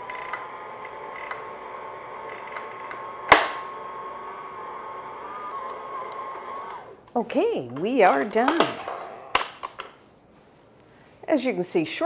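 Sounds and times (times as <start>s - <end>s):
stand mixer motor whine: 0.0s - 7.0s.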